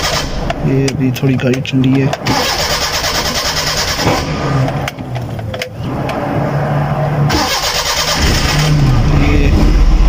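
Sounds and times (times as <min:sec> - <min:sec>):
starter cranking engine: 0:00.0 - 0:00.4, 0:02.2 - 0:04.1, 0:07.3 - 0:08.8
engine catching: 0:00.0 - 0:06.4, 0:07.0 - 0:10.0
clicks: 0:04.6 - 0:06.2.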